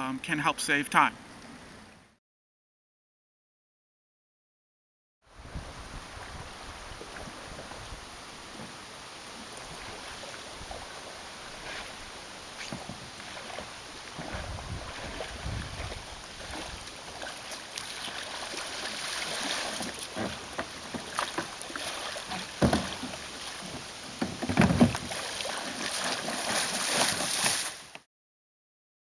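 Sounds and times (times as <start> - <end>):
kayak paddle strokes: 6.2 - 28.0
water sloshing and splashing: 6.2 - 28.0.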